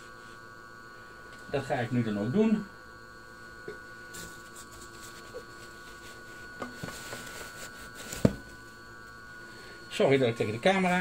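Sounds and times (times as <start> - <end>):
faint machine whine: 0.0 - 11.0
paper towel rustling: 4.2 - 8.4.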